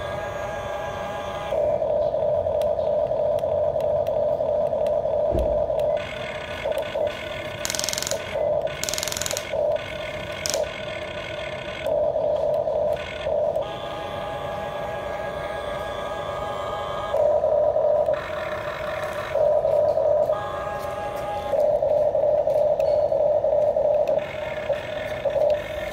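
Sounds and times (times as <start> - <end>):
small electric motors whining: 0.0 - 25.9
harsh bursts of noise: 5.3 - 12.0.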